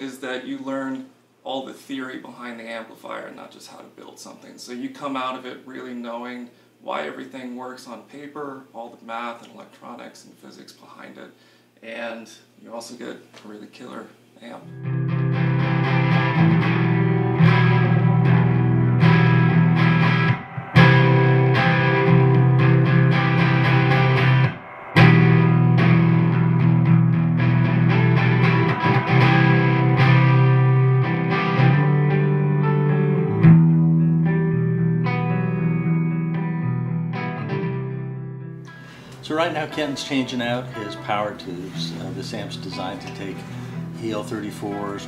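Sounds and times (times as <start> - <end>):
electric guitar ringing chords: 14.6 - 45.0.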